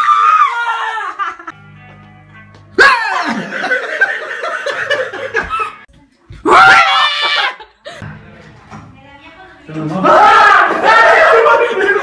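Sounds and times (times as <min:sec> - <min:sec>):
woman screaming: 0:00.0 - 0:01.4, 0:02.8 - 0:03.4, 0:06.4 - 0:07.6
loud laughter: 0:00.2 - 0:01.6, 0:02.8 - 0:05.8, 0:06.6 - 0:08.0, 0:11.1 - 0:12.0
music: 0:01.5 - 0:06.3.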